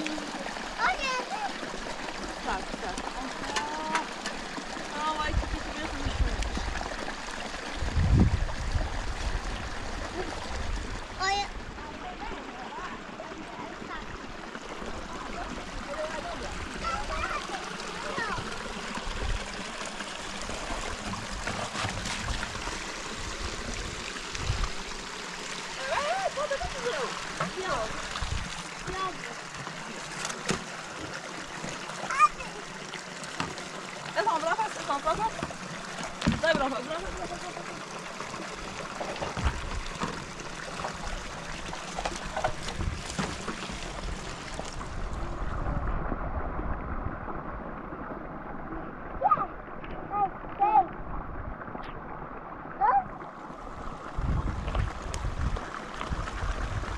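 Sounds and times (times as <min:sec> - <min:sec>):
water pump engine running: 0:00.0 - 0:45.8
stream flowing over stones: 0:00.0 - 0:56.9
wind rumble on microphone: 0:07.8 - 0:11.9, 0:23.2 - 0:24.8, 0:28.1 - 0:28.6, 0:43.9 - 0:48.0, 0:53.7 - 0:56.9.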